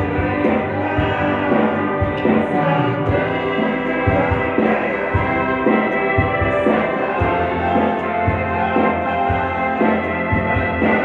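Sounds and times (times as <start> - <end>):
drums beating: 0.0 - 11.0
electric bass: 0.0 - 11.0
live band music: 0.0 - 11.0.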